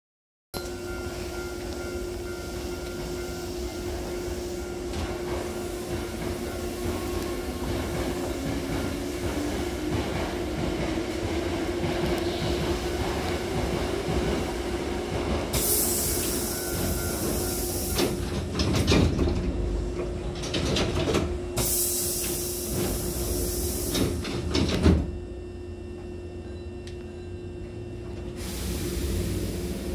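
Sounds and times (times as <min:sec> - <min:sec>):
train humming: 0:00.6 - 0:29.9
sliding doors closing with thump: 0:15.3 - 0:21.3
high air hiss: 0:15.6 - 0:16.6, 0:28.4 - 0:29.9.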